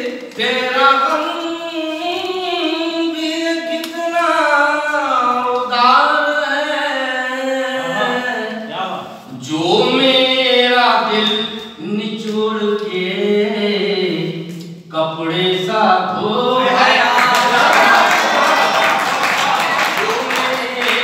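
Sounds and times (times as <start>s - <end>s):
person singing: 0.0s - 8.6s.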